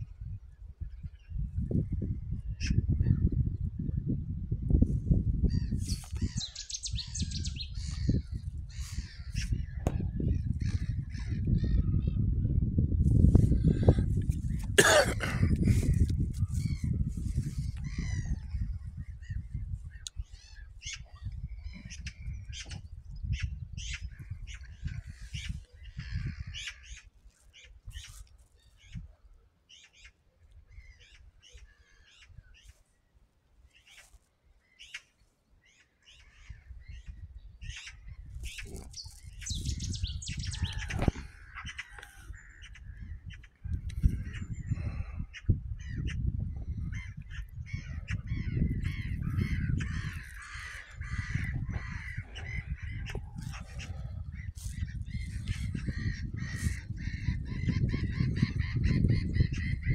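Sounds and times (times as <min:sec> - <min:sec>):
low rumble on microphone: 0:07.0 - 0:26.6, 0:36.8 - 0:59.9
gulls calling: 0:47.0 - 0:59.9.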